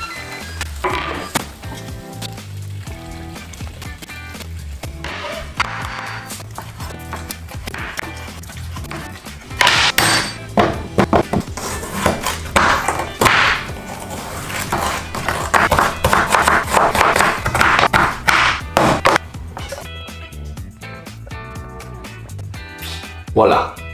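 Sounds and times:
background music: 0.0 - 23.9
knife chopping on cutting board: 9.6 - 19.2.

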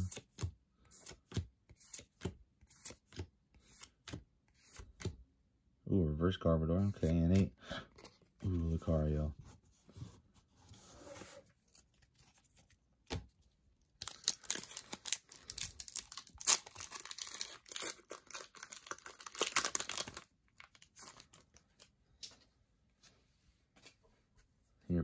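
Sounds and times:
foil wrapper tearing and crinkling: 14.0 - 21.6.

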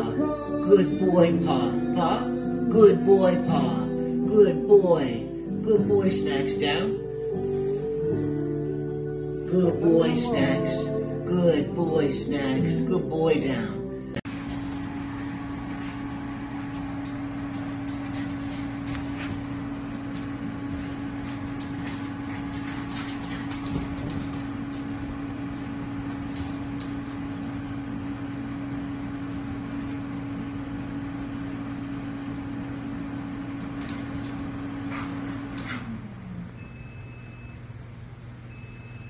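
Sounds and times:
household appliance humming: 14.3 - 36.8.

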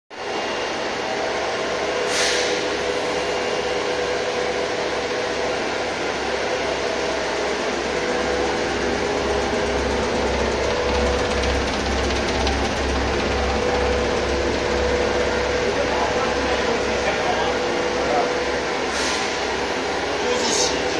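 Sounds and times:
brief hiss: 2.1 - 2.7.

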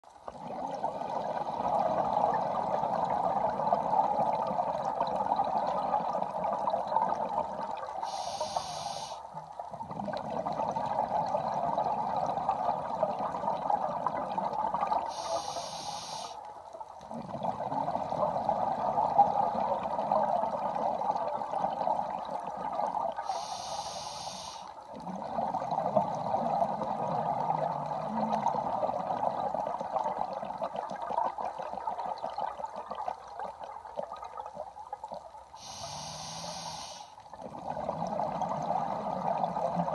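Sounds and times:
burble of exhaled bubbles: 0.2 - 8.2, 9.4 - 15.6, 16.8 - 23.5, 24.8 - 35.8, 37.2 - 39.9
hiss of inhalation through regulator: 8.0 - 9.3, 15.1 - 16.4, 23.2 - 24.8, 35.6 - 37.2.

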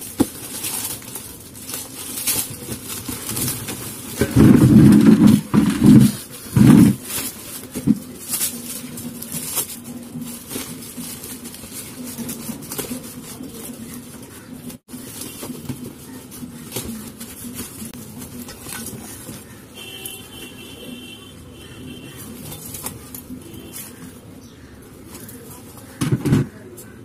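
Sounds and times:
plastic bag crinkling and tearing: 0.0 - 19.6.

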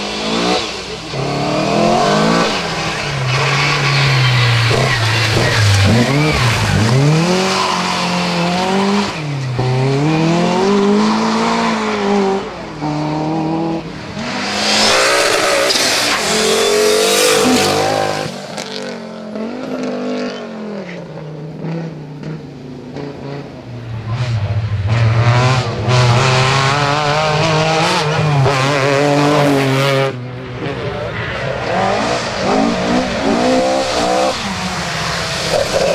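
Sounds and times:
rally car engines revving: 0.0 - 35.9
hissing tyre noise: 14.0 - 18.6.

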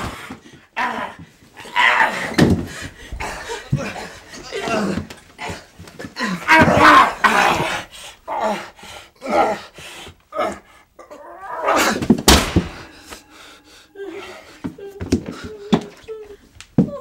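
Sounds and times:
pained cries: 0.0 - 17.0
person moaning: 3.2 - 5.6, 12.8 - 17.0.

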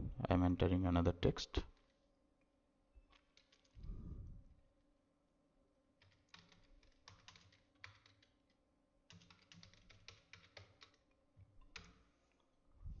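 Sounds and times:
keyboard typing clicks: 3.1 - 3.8, 6.0 - 8.4, 9.1 - 12.0.

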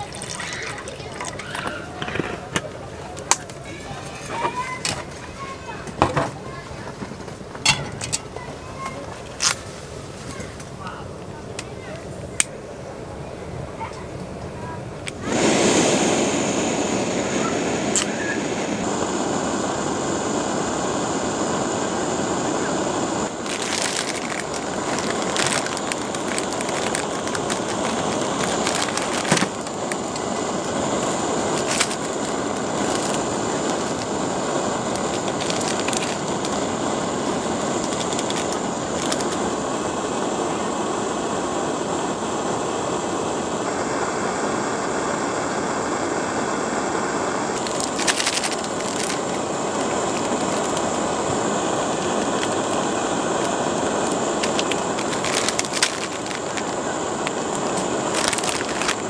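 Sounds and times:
gas stove flame hissing: 0.0 - 59.0
sharp clicks and ticks: 23.4 - 34.2, 47.5 - 51.0, 52.0 - 59.0.

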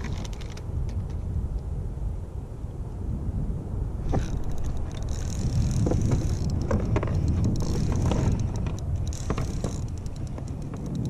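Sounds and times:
wind rumbling on microphone: 0.0 - 11.0
fishing reel clicking and whirring: 4.1 - 11.0.

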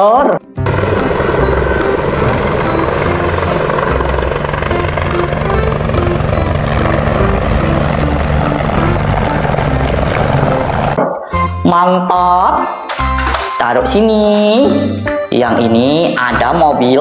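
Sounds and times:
plinking background music: 0.5 - 17.0
helicopter rotor and engine: 0.6 - 11.0.

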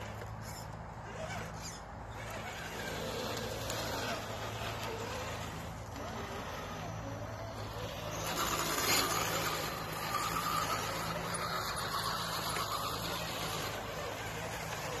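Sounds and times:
electric motors whining: 0.0 - 15.0.

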